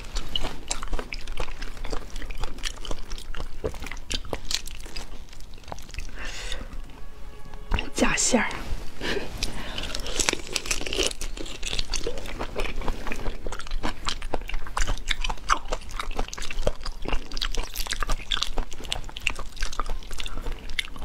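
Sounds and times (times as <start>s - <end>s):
prawn shells crackling: 0.0s - 6.3s, 9.4s - 14.3s
wet biting and chewing: 0.0s - 6.6s, 9.4s - 21.0s.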